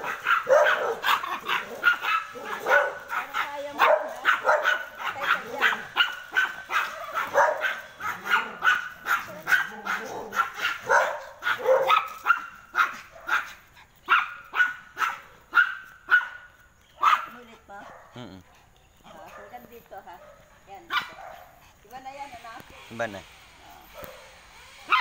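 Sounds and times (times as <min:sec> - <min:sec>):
dog barking: 0:00.0 - 0:18.3, 0:19.1 - 0:21.6, 0:23.6 - 0:24.3.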